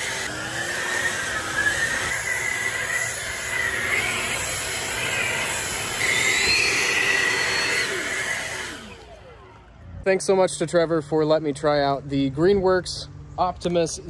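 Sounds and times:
electric leaf blowers whining: 0.0s - 10.4s.

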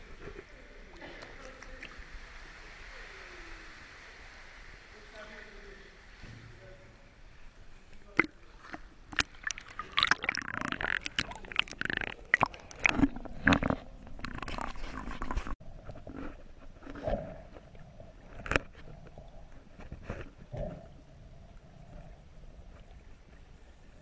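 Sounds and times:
water splashing and sloshing: 0.0s - 24.0s.

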